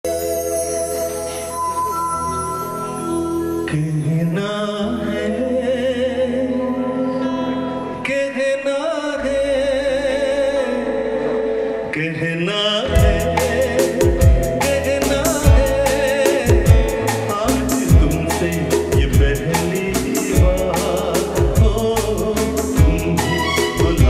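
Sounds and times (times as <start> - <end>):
man singing into microphone: 3.6 - 24.0
sustained keyboard chords: 12.9 - 24.0
percussion beat: 13.0 - 24.0.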